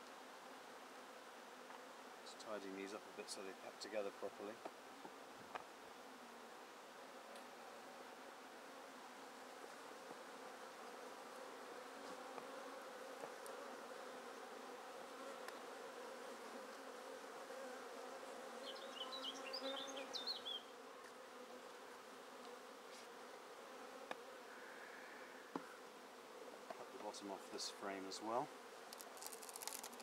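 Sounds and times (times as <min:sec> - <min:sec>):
bees buzzing: 0:07.6 - 0:27.2, 0:27.8 - 0:30.0.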